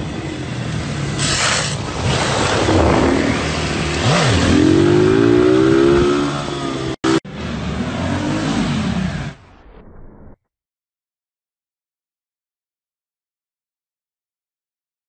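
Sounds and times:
motorcycle engines revving: 0.0s - 9.5s.

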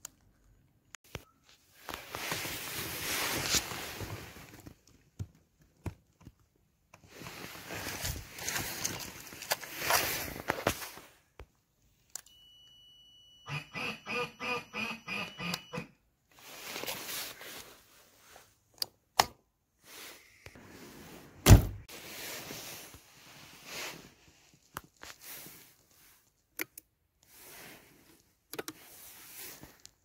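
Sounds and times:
handling rustles and clicks: 0.0s - 12.4s, 24.4s - 27.4s
loud thump: 21.4s - 21.8s.

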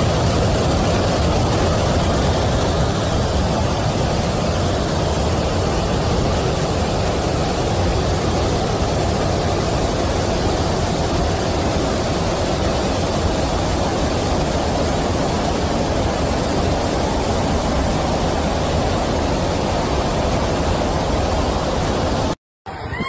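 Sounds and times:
floodwater rushing: 0.0s - 22.4s.

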